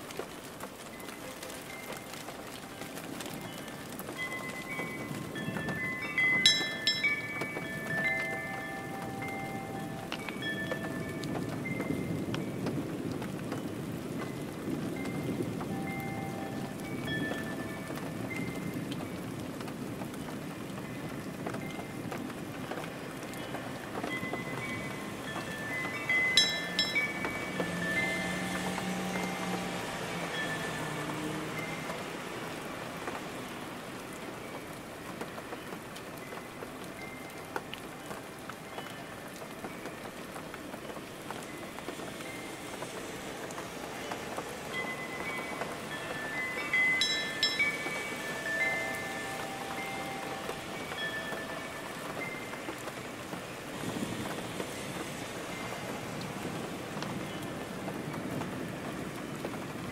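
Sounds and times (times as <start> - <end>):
rain falling: 0.0 - 59.9
chime tones: 4.2 - 12.2, 24.1 - 31.9, 44.7 - 52.6
faint high ringing tone: 46.0 - 52.6.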